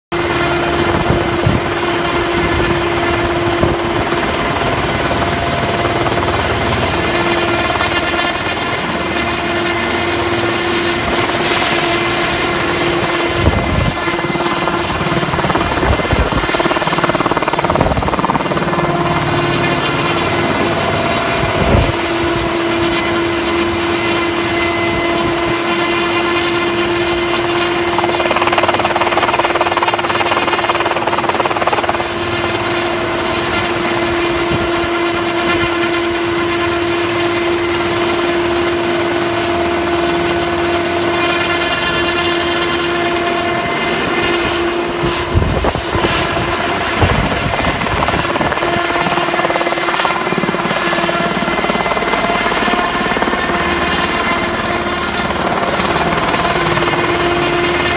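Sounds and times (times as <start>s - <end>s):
helicopter flying overhead: 0.1s - 57.9s
high whine: 17.4s - 29.1s.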